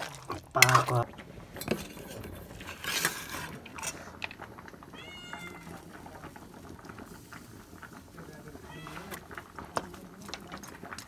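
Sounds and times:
metal spatula scraping wok: 1.6s - 4.2s
cat meowing: 4.6s - 6.1s, 8.5s - 9.4s.

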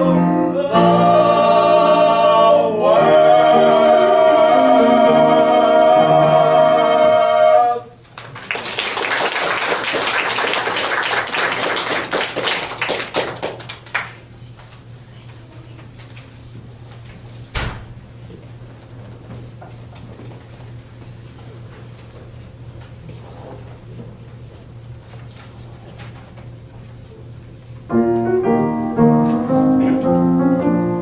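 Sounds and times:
men singing a held note: 0.0s - 7.9s
audience clapping: 8.1s - 14.3s.

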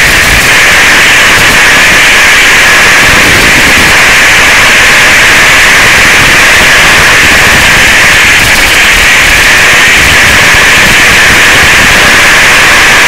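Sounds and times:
radio static hiss: 0.0s - 2.1s.

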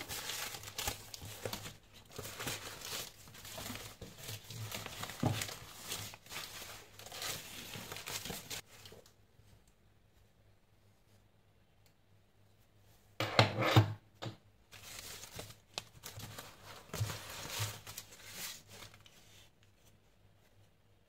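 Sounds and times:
paper and cardboard rustling: 0.0s - 9.1s, 14.7s - 20.6s.

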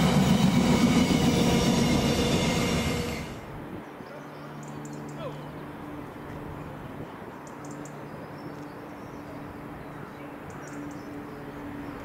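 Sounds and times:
diesel locomotive engine drone: 0.0s - 7.4s.

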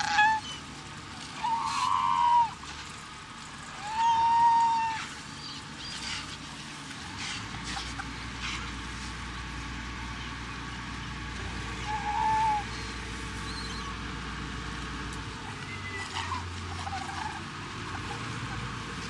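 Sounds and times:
sea lions calling: 0.0s - 0.7s, 1.3s - 2.6s, 3.8s - 6.4s, 11.7s - 14.0s, 15.4s - 18.7s
boat engine humming: 0.0s - 19.0s.

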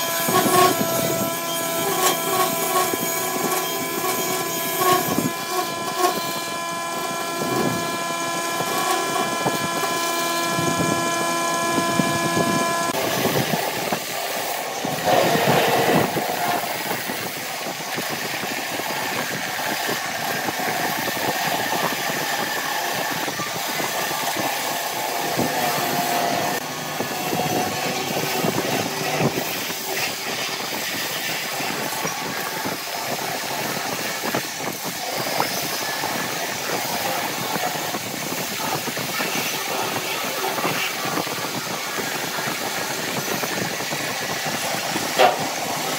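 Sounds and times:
turning tool scraping wood: 0.0s - 17.3s, 42.0s - 45.9s
wood lathe humming: 0.0s - 45.9s.

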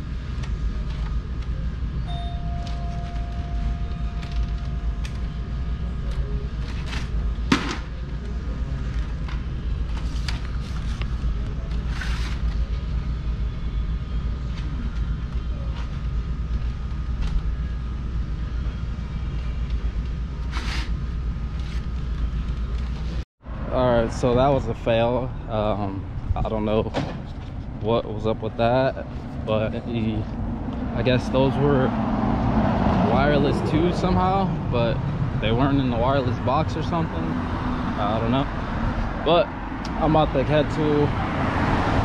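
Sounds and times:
low room hum: 0.0s - 23.2s
thin steady tone: 2.0s - 5.7s.

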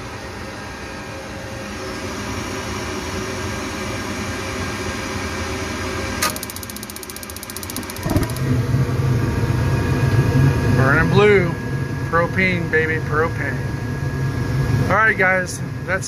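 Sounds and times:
furnace fan running: 0.0s - 16.0s
spark igniter ticking: 6.2s - 8.5s.

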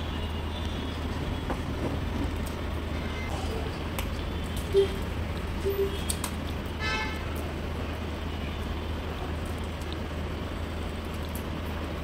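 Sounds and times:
steady background hum: 0.0s - 12.0s
street traffic: 0.0s - 12.0s.

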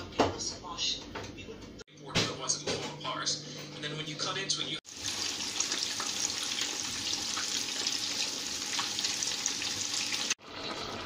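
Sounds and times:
fish sizzling in hot oil: 4.9s - 10.4s.

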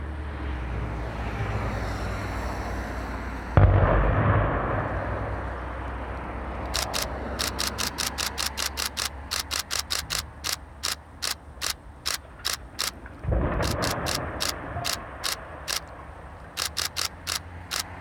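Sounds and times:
distant demolition blast rumble: 3.6s - 6.7s, 12.2s - 16.6s
sharp clicking: 6.2s - 18.0s.

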